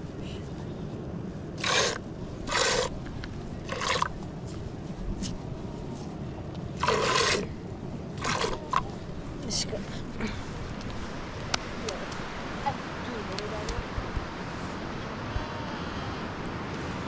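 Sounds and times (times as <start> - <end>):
low background rumble: 0.0 - 17.0
scraping strokes: 1.6 - 3.0, 6.8 - 7.5, 8.2 - 8.9.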